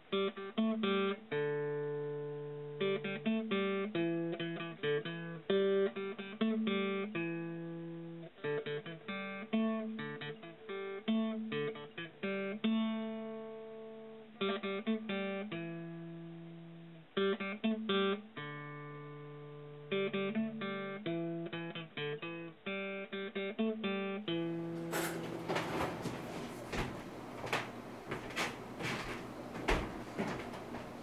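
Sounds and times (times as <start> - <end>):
plucked acoustic guitar: 0.2 - 13.6, 17.2 - 26.1.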